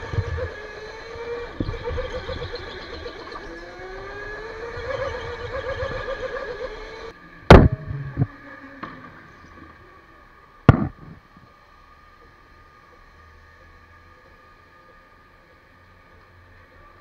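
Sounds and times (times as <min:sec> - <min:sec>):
electric motor whining: 0:00.0 - 0:17.0
loud sharp knocks: 0:10.7 - 0:11.1.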